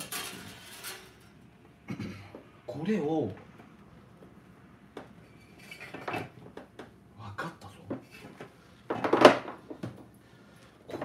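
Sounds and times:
metal parts clattering: 0.0 - 1.3.

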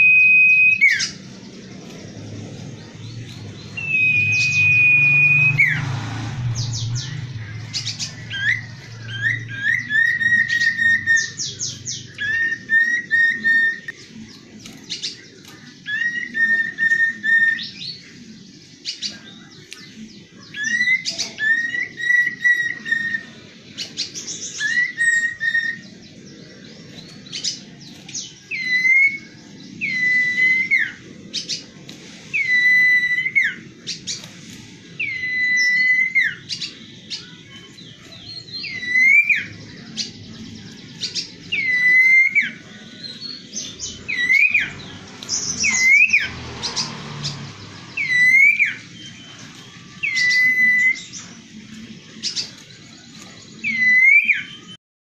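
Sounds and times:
bird whistling: 0.0 - 1.2, 3.0 - 5.9, 6.6 - 14.0, 15.8 - 18.0, 20.5 - 26.0, 27.4 - 31.6, 32.3 - 34.2, 35.0 - 37.4, 38.3 - 40.1, 41.0 - 46.8, 48.0 - 51.3, 53.6 - 54.8
sharp high bird chirps: 0.0 - 14.2, 34.9 - 51.4.

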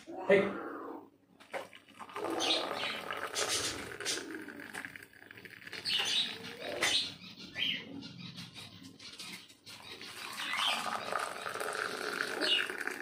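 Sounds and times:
water pouring into glass: 1.4 - 7.0, 10.0 - 13.0
parrots chirping and squawking: 2.2 - 13.0.

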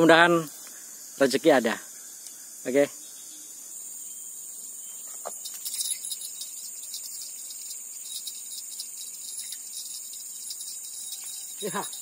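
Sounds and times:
high-pitched insect drone: 0.0 - 12.0
light metallic clicks and jingles: 5.1 - 12.0.

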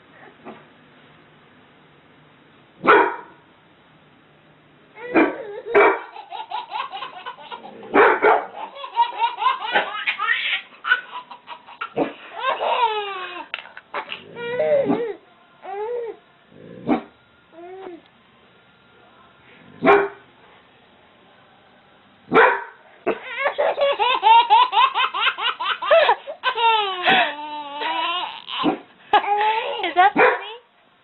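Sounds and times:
dog barking: 2.8 - 3.4, 5.1 - 6.1, 7.9 - 8.6, 16.8 - 17.1, 19.8 - 20.2, 22.3 - 23.2, 28.6 - 28.8, 30.2 - 30.5
baby laughing: 5.0 - 15.0, 23.1 - 30.0.

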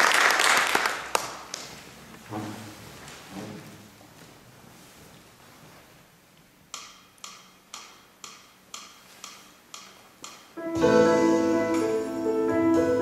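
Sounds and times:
sharp ticks: 6.7 - 10.5
grand piano chords and melody: 10.6 - 13.0.

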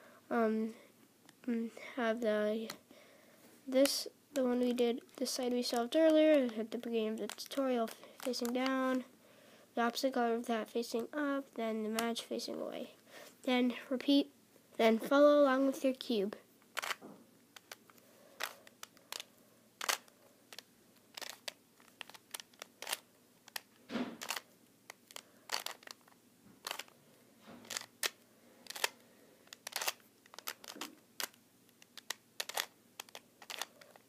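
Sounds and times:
puzzle cube clicking: 3.8 - 9.0, 16.6 - 27.0, 27.6 - 34.0.

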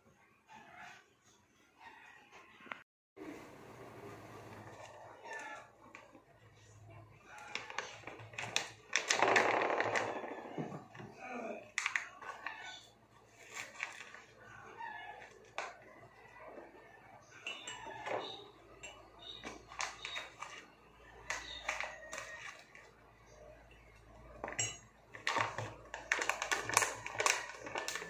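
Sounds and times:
spoon clinking on glassware: 17.4 - 20.2, 24.4 - 25.7.

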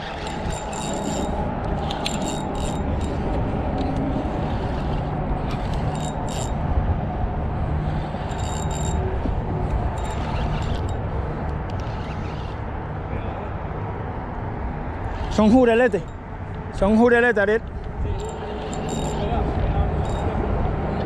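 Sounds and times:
fishing reel clicking and rattling: 0.0 - 6.6, 7.9 - 9.1, 9.9 - 12.6, 18.2 - 20.4.

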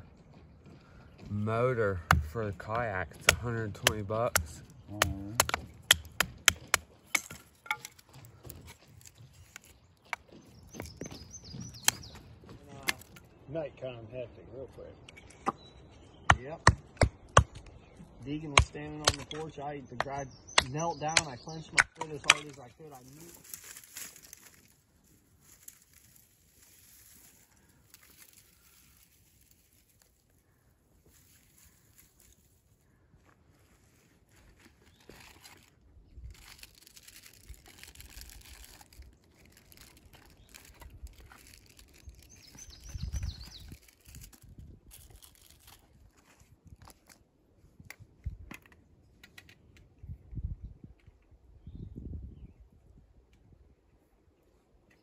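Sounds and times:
sharp knocks or snaps: 3.2 - 8.0.

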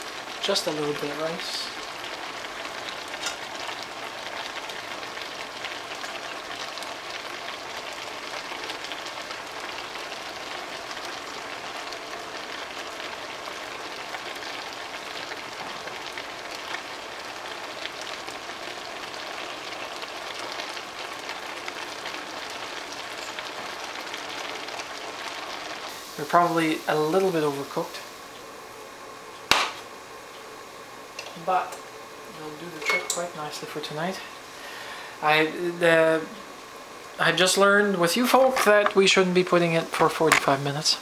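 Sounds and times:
stir-fry sizzling and bubbling: 0.0 - 41.0.

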